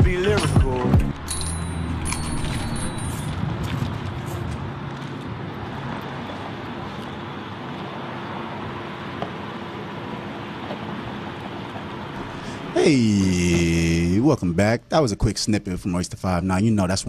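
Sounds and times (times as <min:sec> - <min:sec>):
hip-hop music: 0:00.0 - 0:02.0
steady even noise: 0:03.3 - 0:16.1.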